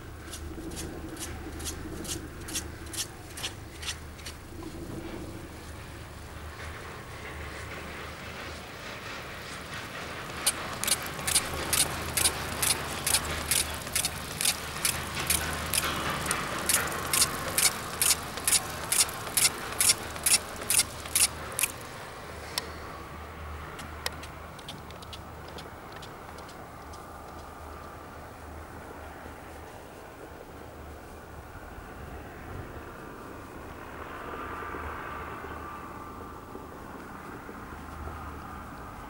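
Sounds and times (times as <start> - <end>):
haul rope rumble: 0.0 - 31.2
chairlift grip clacking: 10.3 - 21.8.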